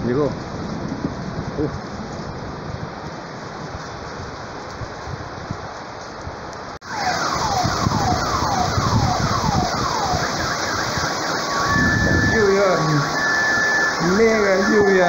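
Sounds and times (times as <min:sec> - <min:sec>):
heavy rain pouring: 0:00.0 - 0:15.0
alarm siren whooping: 0:06.8 - 0:15.0.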